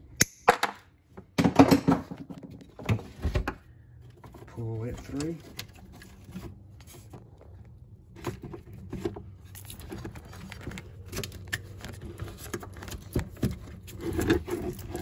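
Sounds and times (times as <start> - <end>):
wires rustling: 4.0 - 15.0.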